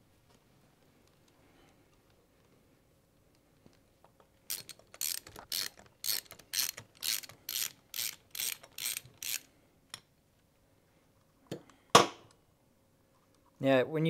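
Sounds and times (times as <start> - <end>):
socket ratchet clicking: 4.5 - 9.5.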